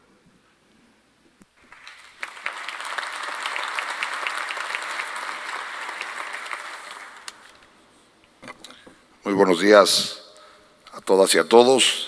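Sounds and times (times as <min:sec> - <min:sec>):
audience applauding: 0:01.6 - 0:07.8.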